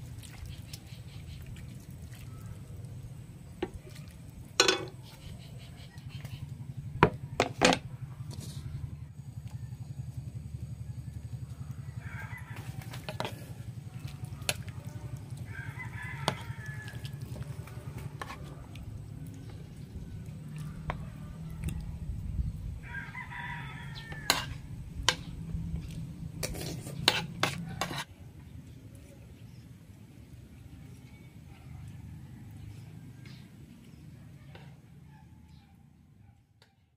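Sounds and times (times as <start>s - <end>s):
steady low hum: 0.1s - 31.6s
rooster crowing: 8.9s - 14.0s, 14.8s - 17.9s, 20.7s - 22.1s, 22.8s - 24.8s.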